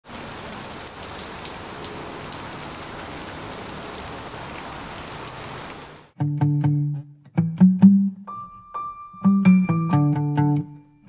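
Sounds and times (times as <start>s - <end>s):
raindrops ticking: 0.0s - 6.2s
steady rain hissing: 0.0s - 6.2s.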